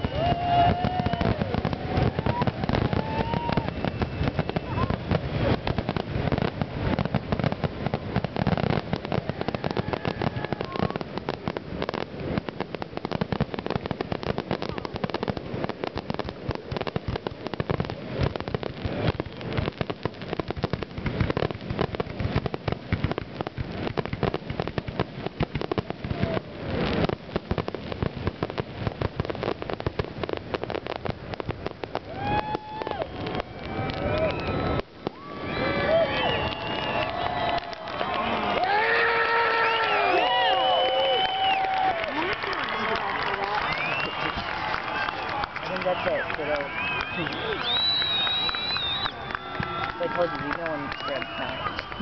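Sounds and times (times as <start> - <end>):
continuous firework crackling: 0.0 - 52.0
firework shells bursting: 43.1 - 52.0.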